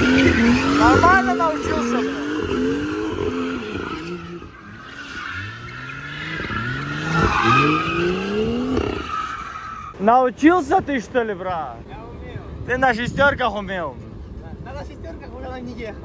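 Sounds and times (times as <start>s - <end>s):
car engine revving: 0.0s - 10.0s
tyres squealing on tarmac: 0.0s - 10.1s.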